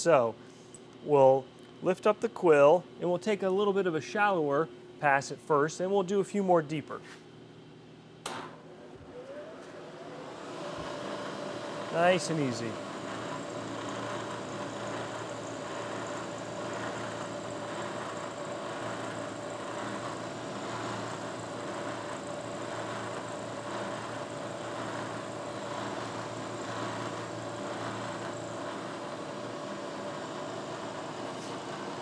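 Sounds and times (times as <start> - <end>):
milling machine hum: 8.5 - 32.0
metal cutting noise: 10.6 - 31.9.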